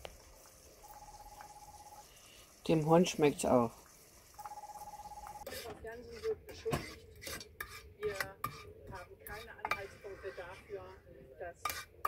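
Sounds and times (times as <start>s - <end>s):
metal utensil scraping pot: 5.3s - 11.0s, 11.6s - 12.0s.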